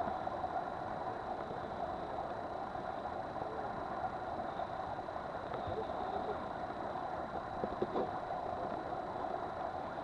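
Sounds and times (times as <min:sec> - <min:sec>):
water rushing along hull: 0:00.0 - 0:10.0.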